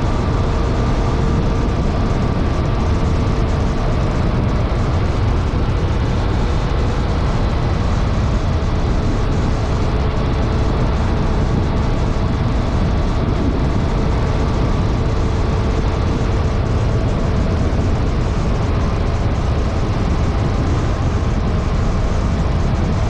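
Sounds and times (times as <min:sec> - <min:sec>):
road noise: 0:00.0 - 0:23.0
wind buffeting: 0:00.0 - 0:23.0.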